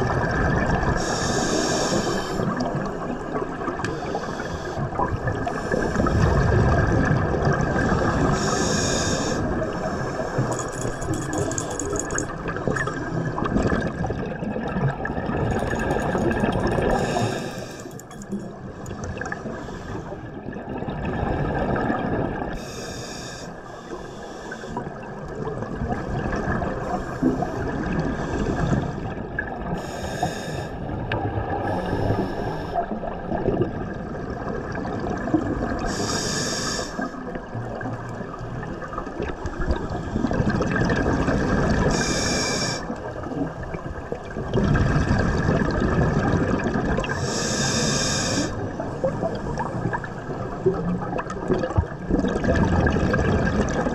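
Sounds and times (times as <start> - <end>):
exhaled air bubbling: 0.0 - 22.6, 24.6 - 53.9
regulator hissing inhale: 1.0 - 2.5, 4.0 - 4.8, 8.4 - 10.8, 16.8 - 18.4, 22.6 - 24.9, 29.8 - 30.8, 31.6 - 32.9, 35.9 - 37.2, 41.9 - 42.9, 47.2 - 48.6.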